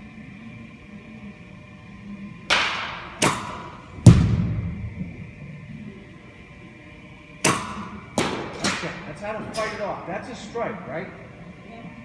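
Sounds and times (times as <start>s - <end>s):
bat cracking against ball: 2.5s - 5.4s, 7.4s - 9.6s.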